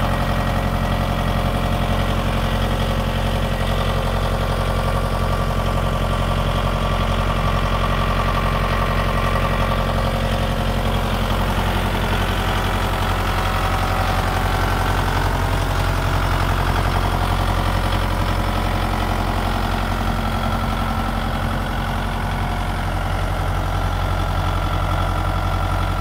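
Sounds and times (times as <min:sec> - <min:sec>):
tractor diesel engine idling: 0:00.0 - 0:26.0.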